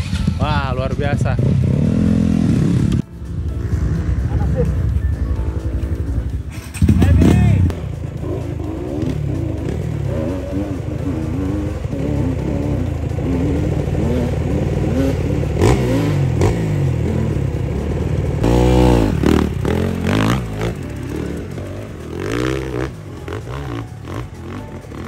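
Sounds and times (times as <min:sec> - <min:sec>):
dirt bike engines revving: 0:00.0 - 0:25.0.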